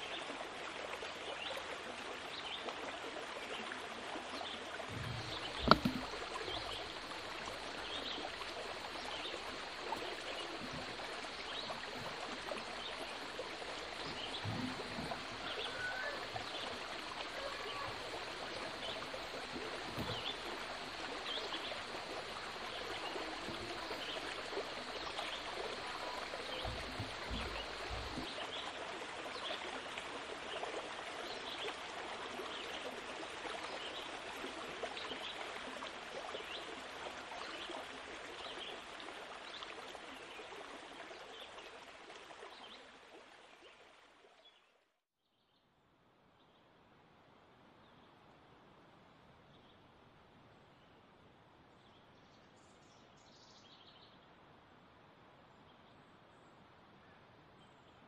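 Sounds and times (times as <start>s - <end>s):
soft low thumps: 4.9s - 15.7s, 18.8s - 28.3s.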